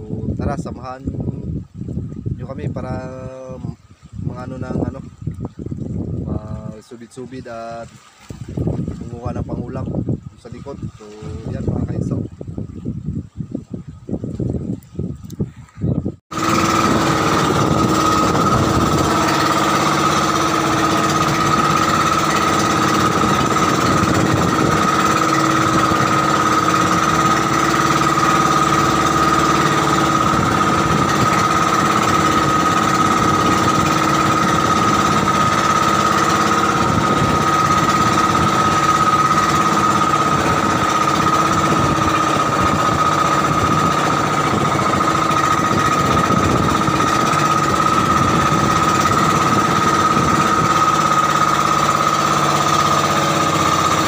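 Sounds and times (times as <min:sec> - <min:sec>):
boat engine clattering: 0:02.4 - 0:12.4, 0:16.3 - 0:54.0
steady high engine whine: 0:16.3 - 0:54.0.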